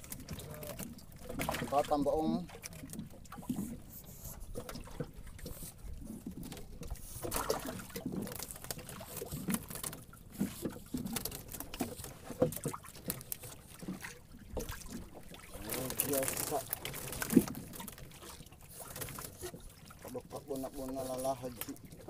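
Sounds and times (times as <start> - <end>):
wire-mesh fish trap rattling: 15.6 - 19.6.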